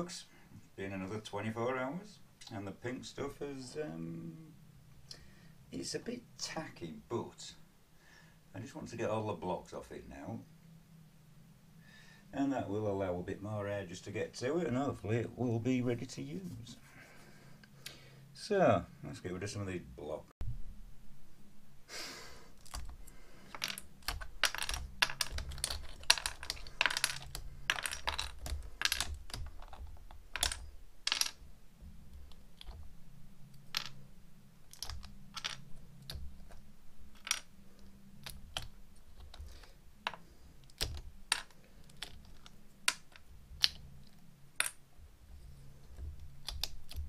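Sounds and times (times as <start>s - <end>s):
plastic bricks clicking and clattering: 22.6s - 31.5s, 32.1s - 32.9s, 33.5s - 34.0s, 34.7s - 43.9s, 45.9s - 47.0s.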